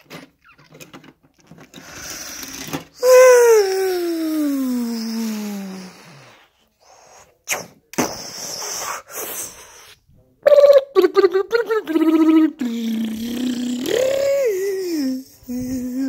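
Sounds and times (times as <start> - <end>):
child making sound effects: 3.0 - 5.8, 10.5 - 16.0.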